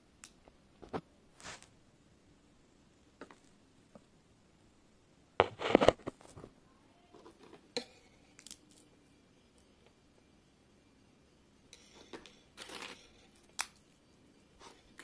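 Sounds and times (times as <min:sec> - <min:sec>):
sweets clattering on plastic tray: 0:12.0 - 0:13.6.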